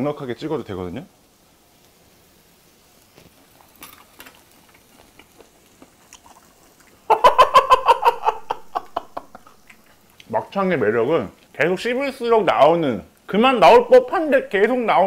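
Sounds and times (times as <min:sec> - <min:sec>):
man laughing out loud: 0:07.1 - 0:09.6.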